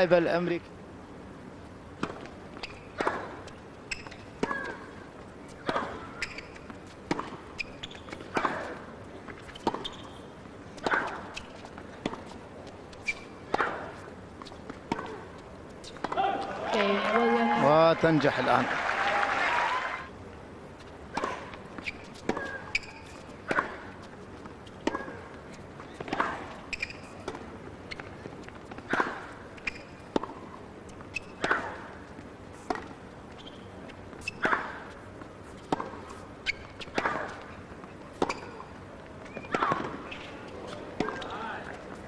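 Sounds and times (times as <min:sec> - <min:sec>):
tennis ball bouncing: 0:01.9 - 0:17.4, 0:21.1 - 0:42.0
tennis ball struck by rackets: 0:02.0 - 0:04.8, 0:05.6 - 0:07.4, 0:08.2 - 0:08.8, 0:10.8 - 0:12.3, 0:13.1 - 0:16.8, 0:21.1 - 0:24.0, 0:24.7 - 0:25.3, 0:28.8 - 0:30.5, 0:31.2 - 0:31.9, 0:34.3 - 0:35.0, 0:35.6 - 0:36.2, 0:36.8 - 0:37.4, 0:38.1 - 0:38.7, 0:39.3 - 0:41.3.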